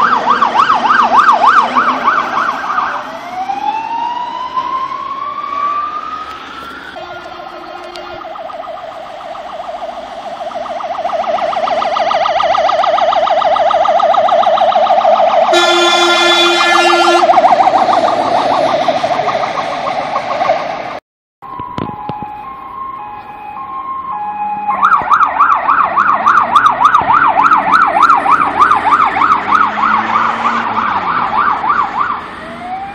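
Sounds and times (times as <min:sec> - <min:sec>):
two-tone hi-lo siren: 0:00.0 - 0:32.9
yelp siren: 0:00.0 - 0:32.9
horn blast: 0:15.5 - 0:17.4.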